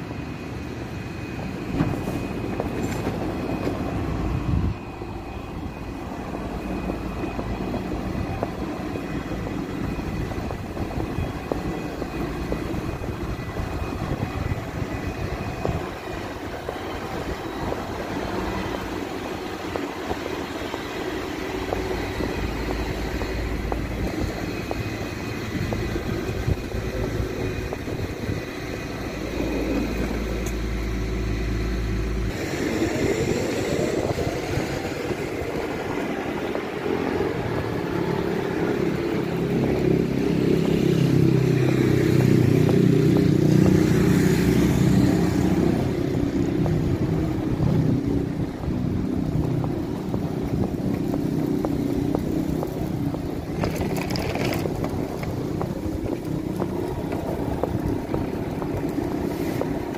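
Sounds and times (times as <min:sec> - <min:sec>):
motor vehicles passing: 0:12.2 - 0:59.9.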